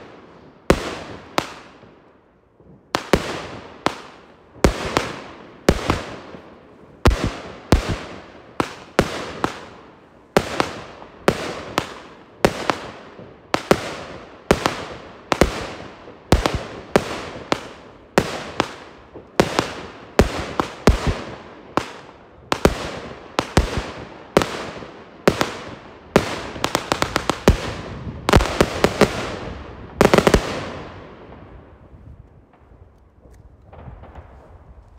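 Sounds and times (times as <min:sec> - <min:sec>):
firework bangs with echo: 0:03.0 - 0:09.8, 0:10.4 - 0:31.5.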